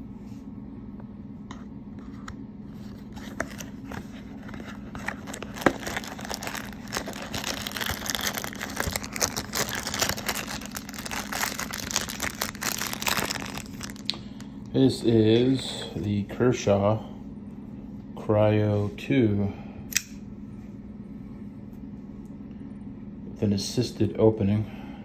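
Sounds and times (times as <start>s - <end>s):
cardboard packaging crinkling: 2.9s - 14.4s.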